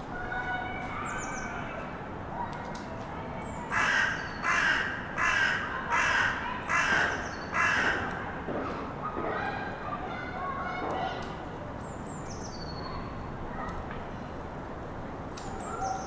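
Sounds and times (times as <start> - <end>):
distant children's voices: 0.0 - 16.0
crow cawing: 3.7 - 8.1.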